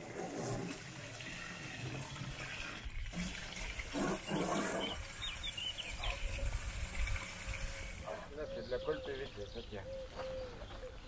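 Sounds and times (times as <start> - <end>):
hose water splashing into tank: 0.0 - 8.1.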